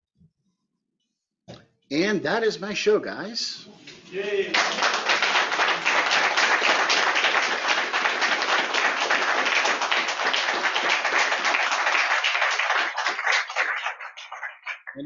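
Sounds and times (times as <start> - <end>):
group of people applauding: 4.1 - 15.0.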